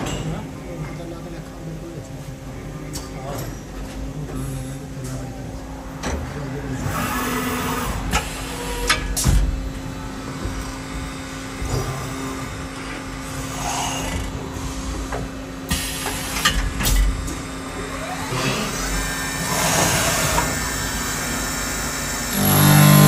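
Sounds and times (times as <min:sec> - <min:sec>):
milling machine humming: 0:04.8 - 0:23.0.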